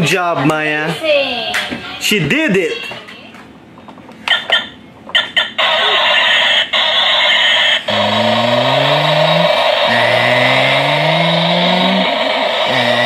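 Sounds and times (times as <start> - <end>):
recorded engine revving: 7.9 - 13.0.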